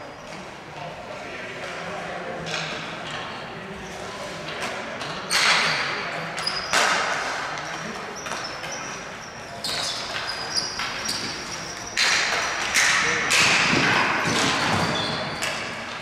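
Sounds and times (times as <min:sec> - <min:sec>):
hockey sticks clacking ball: 0:00.2 - 0:16.0
sneakers squeaking on court: 0:08.1 - 0:12.7, 0:14.3 - 0:15.6.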